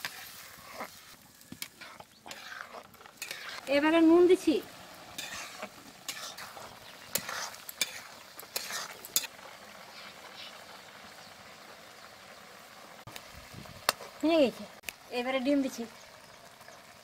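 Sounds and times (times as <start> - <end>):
metal ladle scraping a pan: 0.0 - 10.6
curry bubbling: 0.0 - 17.0.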